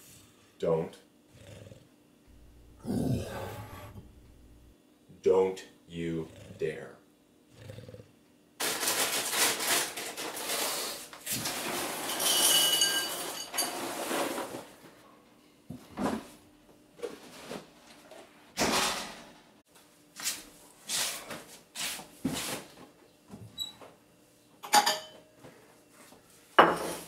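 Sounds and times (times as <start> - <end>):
kitchen clatter and rustling: 8.6 - 15.0, 17.0 - 19.5, 24.6 - 25.2, 26.6 - 27.0
crockery ringing: 12.2 - 13.6.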